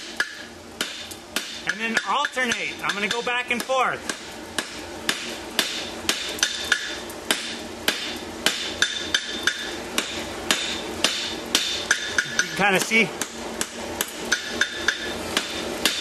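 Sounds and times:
hammer striking steel on anvil: 0.0s - 16.0s
anvil ringing: 10.5s - 12.6s.

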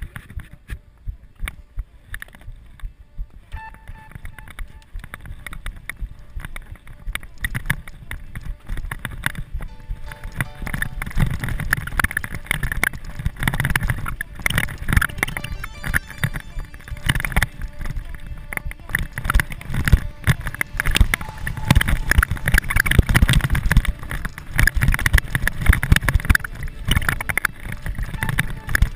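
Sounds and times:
bike tyres on dirt: 0.0s - 15.7s, 17.0s - 28.9s.

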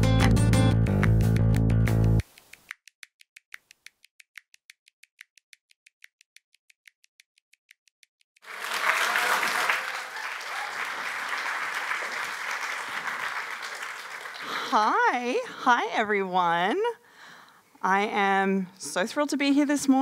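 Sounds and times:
fast faint clicks: 2.2s - 8.4s
audience applauding: 8.4s - 15.4s.

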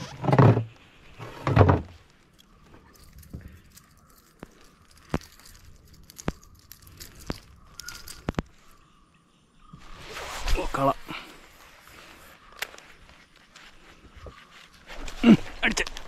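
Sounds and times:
rustling scrapes: 9.8s - 16.0s.

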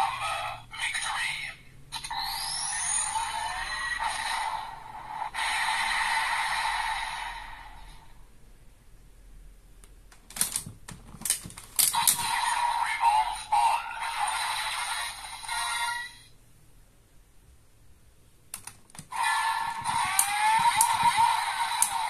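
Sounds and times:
toy announcement voice: 0.0s - 1.6s, 12.2s - 14.4s
toy electronic sound effects: 1.9s - 4.8s, 11.9s - 16.3s, 19.1s - 22.0s
sharp plastic clicks: 18.5s - 19.1s.

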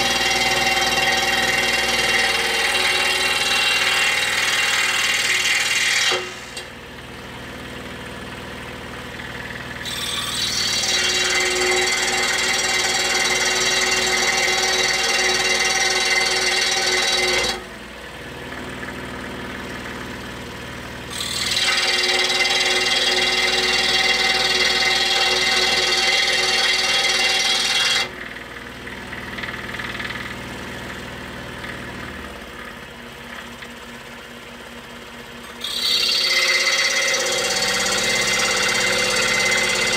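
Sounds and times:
scroll saw cutting wood: 0.0s - 6.8s, 9.1s - 17.8s, 21.0s - 33.8s, 35.4s - 39.9s
scroll saw running: 0.0s - 6.8s, 9.1s - 17.7s, 21.0s - 33.7s, 35.4s - 39.9s.

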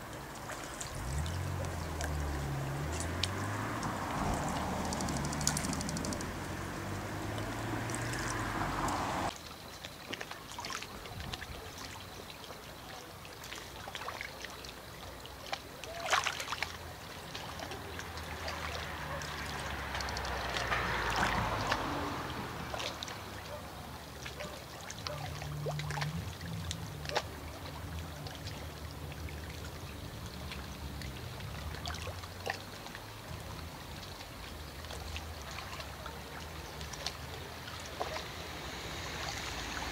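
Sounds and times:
river water: 0.0s - 39.9s
distant motor hum: 0.3s - 9.3s.

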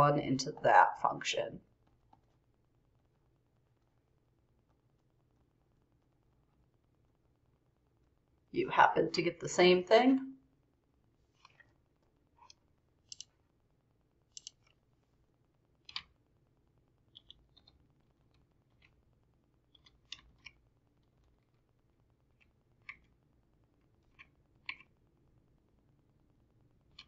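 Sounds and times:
computer keyboard keystrokes: 14.3s - 14.8s
mouse clicks: 14.3s - 14.8s.

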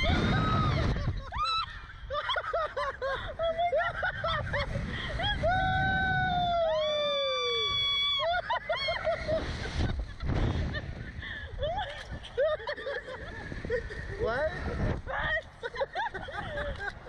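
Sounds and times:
people screaming: 0.0s - 2.4s, 4.6s - 9.7s
people laughing: 0.8s - 5.5s, 8.2s - 17.0s.

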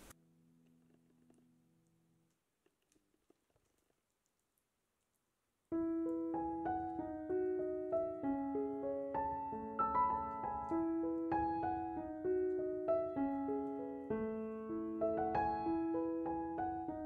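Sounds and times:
gentle piano music: 5.7s - 17.0s.

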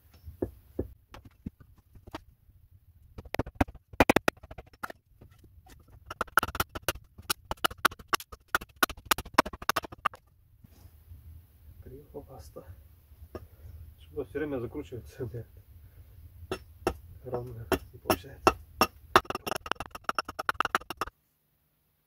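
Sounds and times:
hatchet splitting wood: 3.2s - 5.0s, 5.7s - 10.2s, 16.5s - 21.1s
mallet knocking on hatchet: 6.1s - 10.2s, 16.5s - 21.1s.

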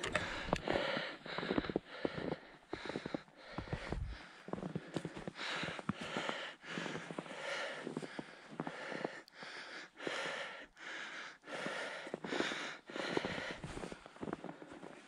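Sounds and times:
man panting: 0.0s - 14.8s
footsteps crunching in snow: 1.4s - 8.0s.

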